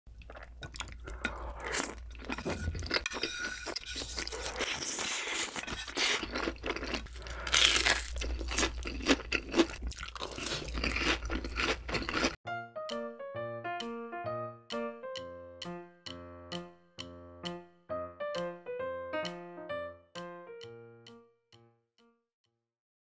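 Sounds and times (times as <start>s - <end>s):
wet chewing and slurping: 0.1s - 12.4s
crunchy bites: 4.2s - 12.4s.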